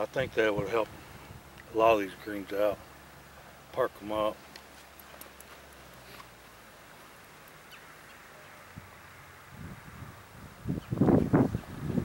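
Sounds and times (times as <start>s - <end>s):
wind buffeting microphone: 8.7s - 12.0s.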